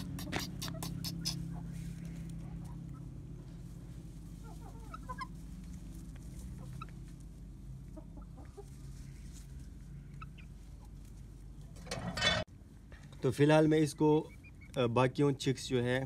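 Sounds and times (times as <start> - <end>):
chickens clucking: 0.0 - 12.9, 14.1 - 14.9
steady low hum: 0.0 - 16.0.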